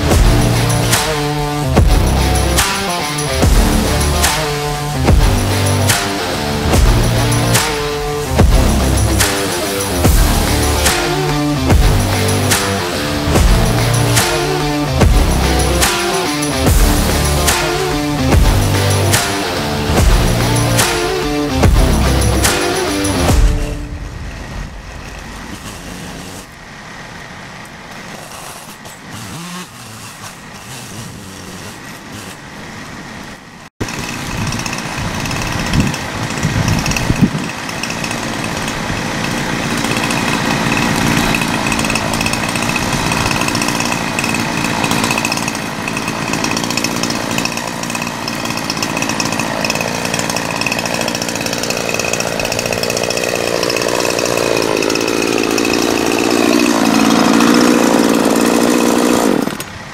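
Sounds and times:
chainsaw running: 0.0 - 59.9.

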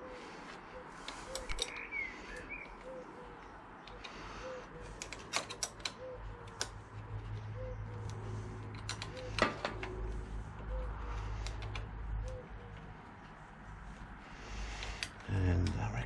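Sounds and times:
spanner clicking on bolts: 5.0 - 6.8, 8.1 - 9.8.

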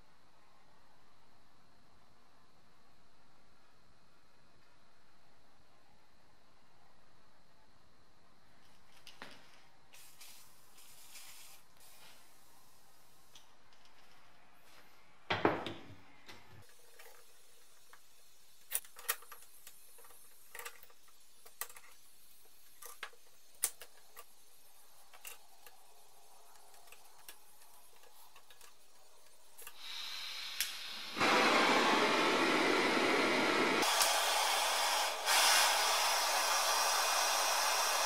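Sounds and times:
parts clicking and tapping: 15.6 - 29.8
blowtorch hissing: 28.9 - 38.0
blowtorch igniter click: 29.7 - 32.1, 33.6 - 38.0.

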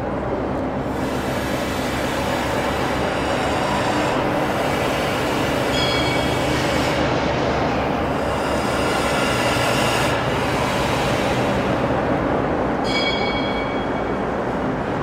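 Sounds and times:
locomotive running noise on track: 0.0 - 15.0
faint high wheel squeal: 5.4 - 6.8, 12.8 - 14.4.

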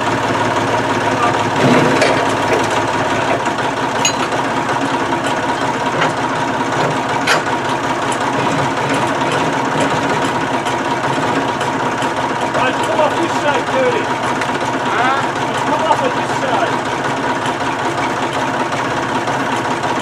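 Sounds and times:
forklift engine idling: 0.0 - 20.0
metal tool clinks: 4.0 - 4.4.

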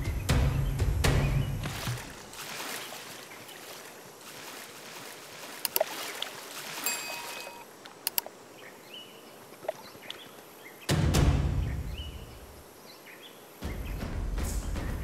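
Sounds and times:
bird wings splashing water: 1.3 - 8.2
water drips and splats: 1.3 - 8.4.

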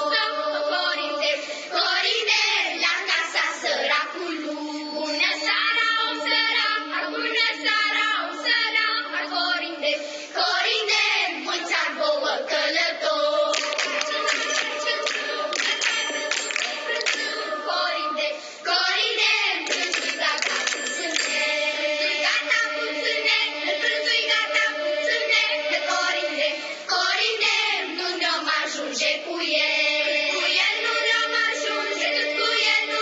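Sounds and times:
children's choir singing: 0.0 - 33.0
rhythmic hand-clapping: 13.0 - 33.0.

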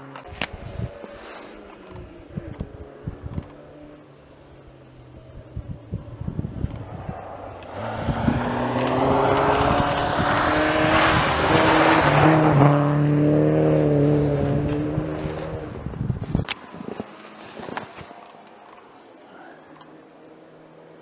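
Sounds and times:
tyre noise on snowy road: 0.0 - 21.0
rally car engine passing: 0.9 - 16.2.

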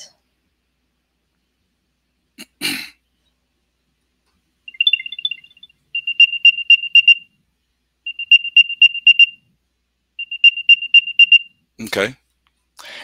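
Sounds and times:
high electronic chirp: 4.7 - 7.2, 8.1 - 9.4, 10.2 - 11.5
rapid high-pitched beeps: 4.7 - 7.2, 8.1 - 9.4, 10.2 - 11.5.

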